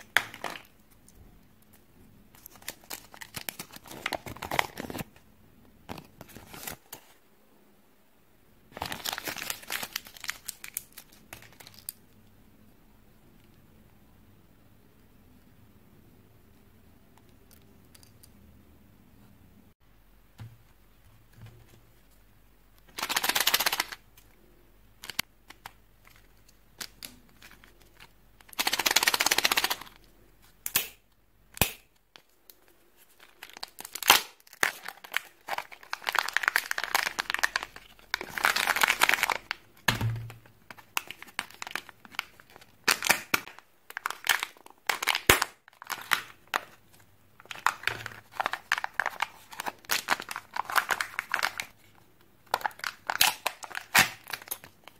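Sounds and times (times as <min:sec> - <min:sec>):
foil wrappers crinkling and tearing: 0:02.4 - 0:05.1, 0:08.8 - 0:12.0, 0:33.0 - 0:39.6, 0:40.7 - 0:46.7, 0:47.4 - 0:51.8, 0:52.5 - 0:54.9.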